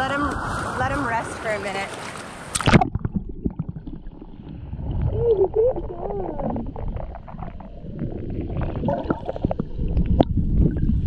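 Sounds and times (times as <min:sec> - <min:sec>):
underwater rumbling and gurgling: 0:00.0 - 0:11.0
microphone splashing into water: 0:00.1 - 0:11.0
muffled voice: 0:05.2 - 0:06.6.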